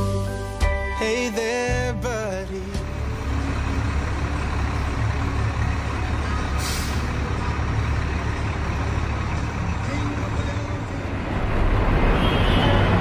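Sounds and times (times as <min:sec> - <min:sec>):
vehicle engine droning: 0:01.8 - 0:13.0
air hiss: 0:06.6 - 0:07.2.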